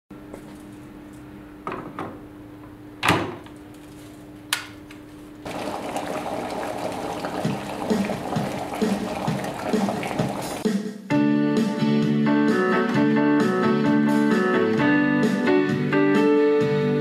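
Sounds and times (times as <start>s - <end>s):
water boiling: 5.4s - 10.7s.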